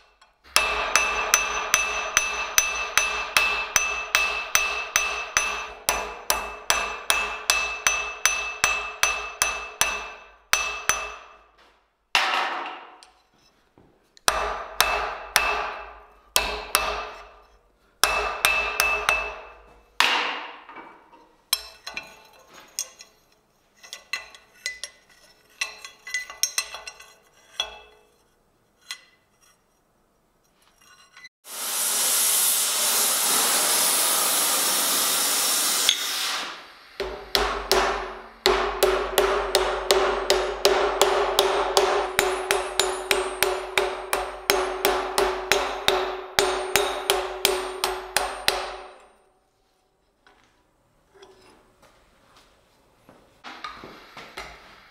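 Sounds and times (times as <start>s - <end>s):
hammer striking hot steel: 0.0s - 11.5s, 14.2s - 20.7s, 35.7s - 49.3s
gas torch hissing: 31.4s - 37.1s.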